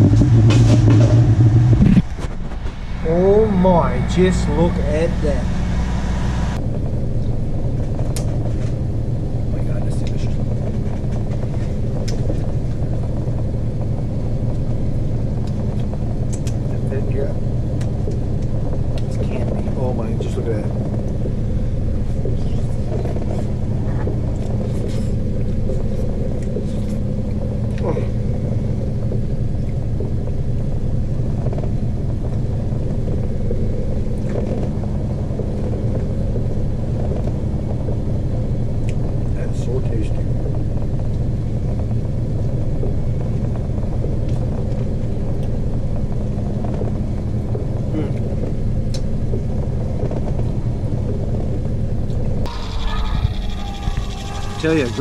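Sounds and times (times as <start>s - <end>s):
boat engine rumbling: 0.0s - 55.0s.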